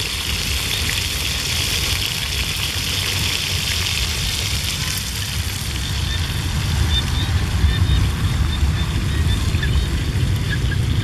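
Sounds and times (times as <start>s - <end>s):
oil sizzling in a wok: 0.0s - 7.2s.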